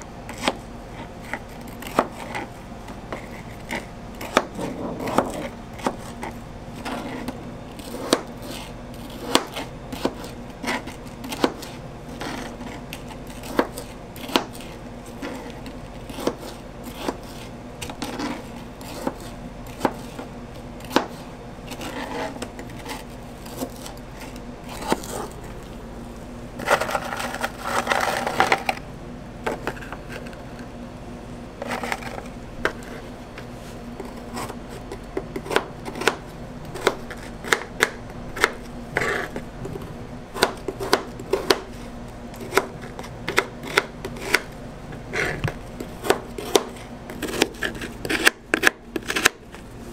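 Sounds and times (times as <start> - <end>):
knife chopping on cutting board: 1.2 - 2.5, 3.1 - 24.0, 34.0 - 36.2, 36.8 - 39.8, 40.4 - 41.7, 42.4 - 44.5, 45.1 - 49.4
scraping noise: 4.5 - 5.6.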